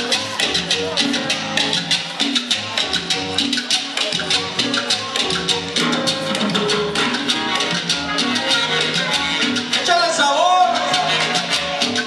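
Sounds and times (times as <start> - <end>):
latin dance music: 0.0 - 12.0.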